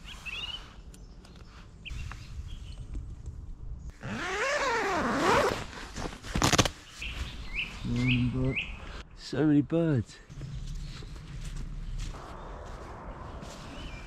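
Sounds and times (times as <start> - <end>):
tent zipper being pulled open: 3.9 - 6.8.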